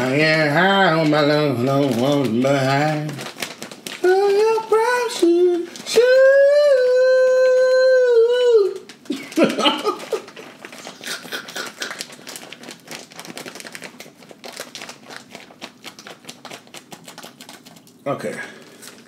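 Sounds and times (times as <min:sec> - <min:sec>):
plastic bag crinkling: 0:00.0 - 0:08.0, 0:08.6 - 0:19.0
man singing a held note: 0:04.0 - 0:08.8.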